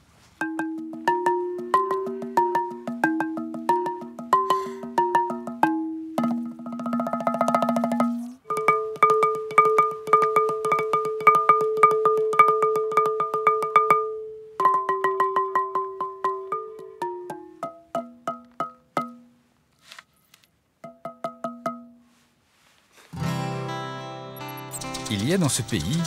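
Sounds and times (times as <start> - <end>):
xylophone music: 0.4 - 7.2, 8.4 - 19.1.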